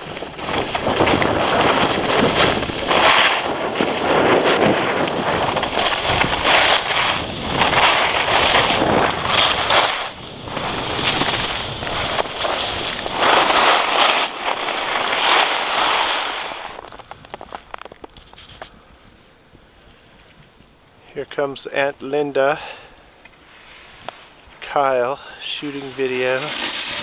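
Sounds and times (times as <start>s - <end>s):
wind rushing over microphone: 0.0s - 17.6s
skis scraping on snow: 0.0s - 18.7s, 23.5s - 27.0s.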